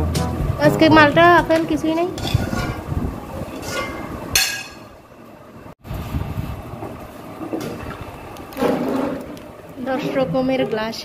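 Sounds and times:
ceramic plates clinking: 2.2s - 2.9s, 3.5s - 4.9s
glasses and dishes clattering: 2.2s - 2.9s, 3.5s - 4.9s.

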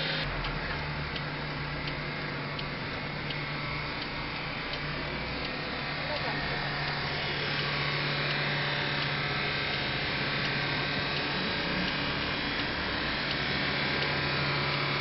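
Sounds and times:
car engine droning: 0.0s - 15.0s.

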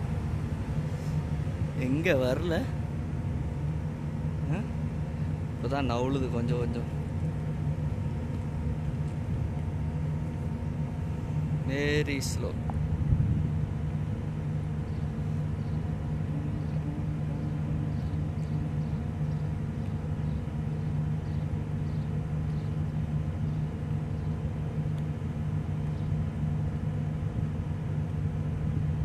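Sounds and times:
ship diesel engine drone: 0.0s - 29.0s.

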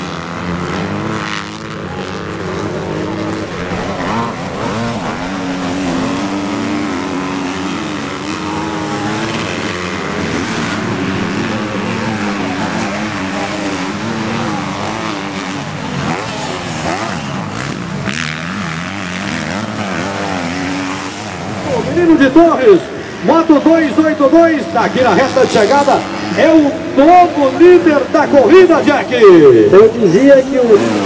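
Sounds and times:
motocross bike engines revving: 0.0s - 31.0s.

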